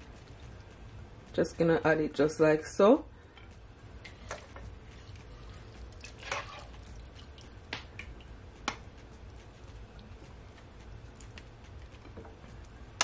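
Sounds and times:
ladle dipping in pan: 4.1 - 7.5.

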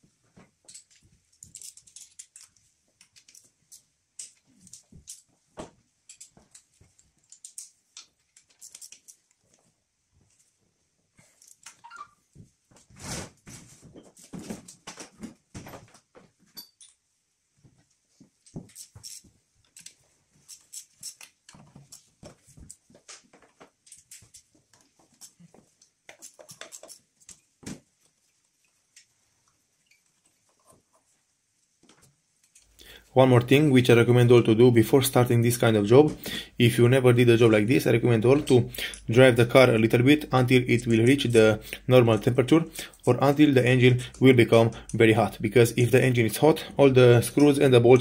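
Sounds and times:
hand tool clicking on metal fittings: 0.7 - 5.3, 6.0 - 9.5, 18.4 - 22.1, 23.8 - 27.4, 37.8 - 48.0
short squeak: 11.8 - 12.2.

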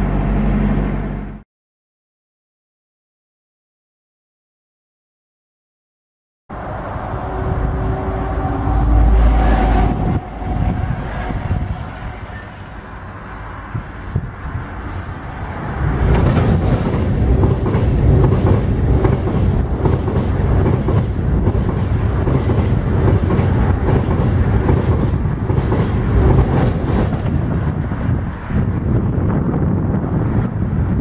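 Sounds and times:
train wheels clattering: 15.9 - 27.8.

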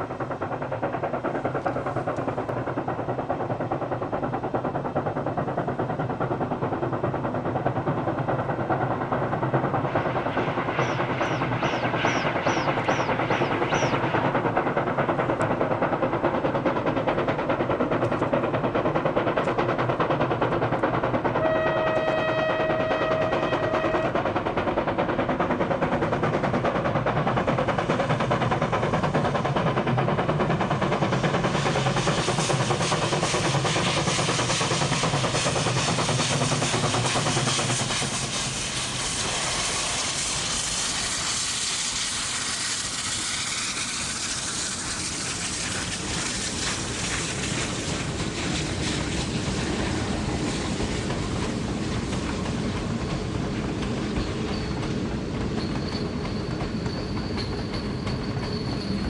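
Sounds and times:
steam locomotive exhaust beats: 0.0 - 59.0
steam whistle: 21.4 - 24.2.

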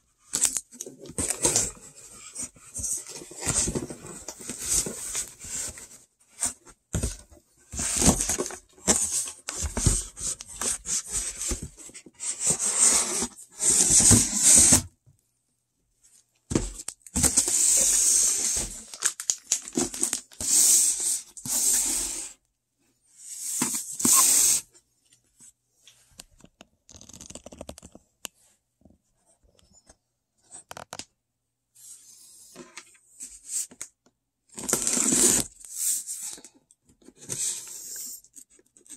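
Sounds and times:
cardboard rustling and scraping: 0.4 - 14.9, 16.5 - 19.0, 23.2 - 24.7.

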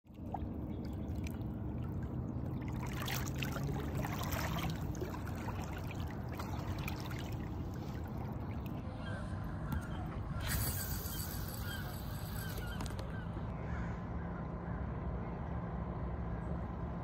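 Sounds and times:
low steady hum: 0.1 - 17.0
river water lapping on rocks: 2.6 - 8.7.

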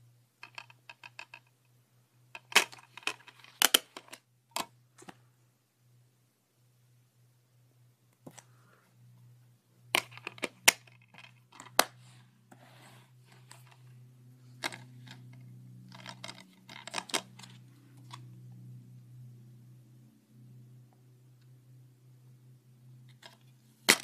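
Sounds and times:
faint low hum: 0.0 - 24.0
plastic case clicks and clacks: 0.4 - 1.5, 2.4 - 5.2, 10.0 - 12.0, 14.6 - 18.2, 23.1 - 24.0.

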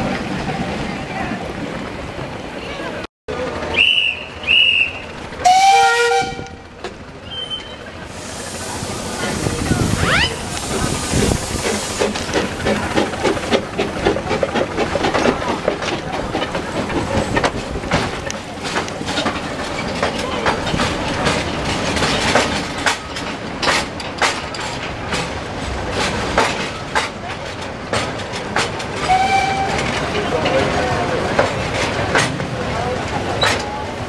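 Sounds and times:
wheels clattering over rail joints: 0.0 - 34.0
steam locomotive chuffing: 3.3 - 34.0
steam hissing: 7.3 - 18.6.

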